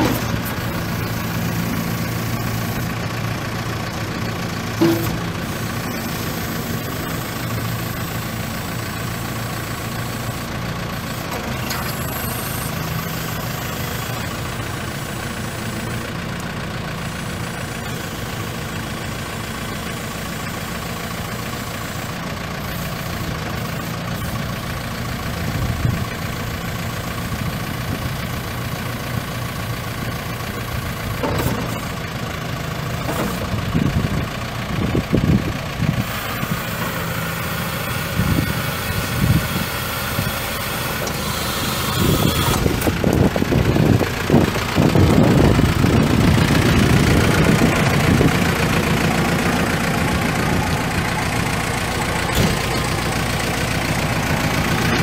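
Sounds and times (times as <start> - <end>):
diesel engine running: 0.0 - 55.0
engine knocks: 3.1 - 8.1, 30.4 - 36.2, 41.9 - 55.0.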